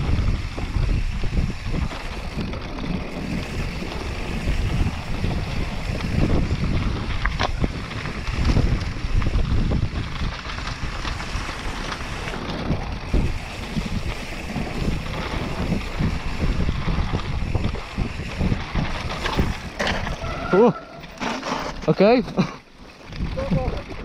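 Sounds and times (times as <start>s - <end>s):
wind rushing over microphone: 0.0s - 20.8s, 23.1s - 24.0s
bike tyres rumbling on dirt: 0.0s - 24.0s
bike knocking over bumps: 1.8s - 20.4s.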